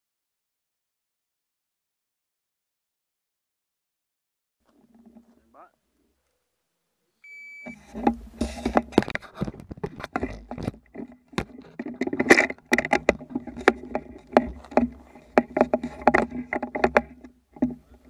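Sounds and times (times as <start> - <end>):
electronic beep: 7.2 - 7.8
gear handling noise: 7.7 - 18.0.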